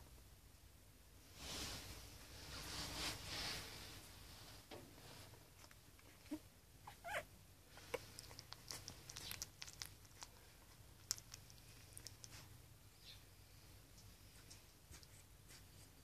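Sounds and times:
puppy squeak: 6.3s - 9.4s
wet suckling clicks: 7.9s - 10.4s.

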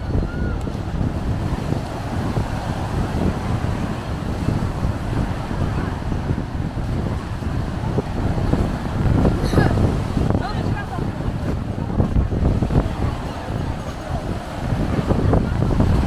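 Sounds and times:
wind buffeting microphone: 0.0s - 16.0s.

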